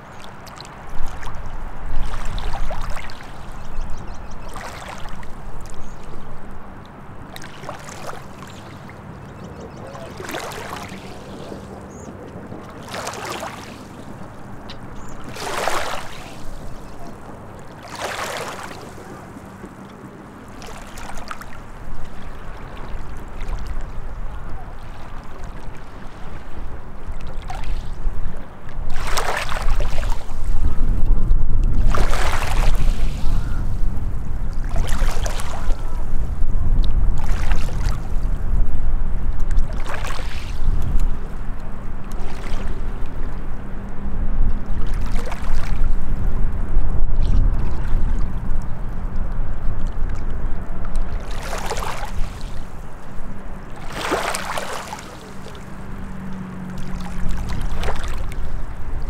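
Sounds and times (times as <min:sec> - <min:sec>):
waves lapping on shore: 0:00.0 - 0:46.8, 0:47.4 - 0:59.0
steady low rumble: 0:40.6 - 0:54.2.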